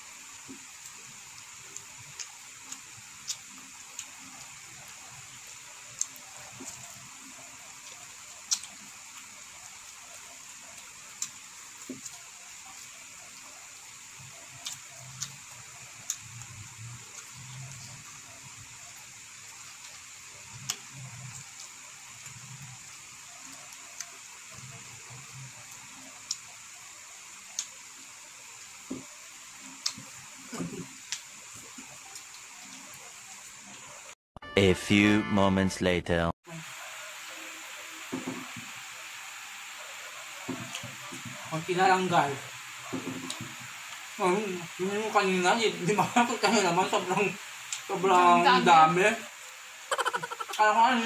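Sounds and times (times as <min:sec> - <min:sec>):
faint hiss: 0:00.0 - 0:32.5, 0:36.5 - 0:51.0
wet chewing and lip-smacking: 0:07.8 - 0:09.3, 0:27.4 - 0:27.8, 0:29.8 - 0:30.1.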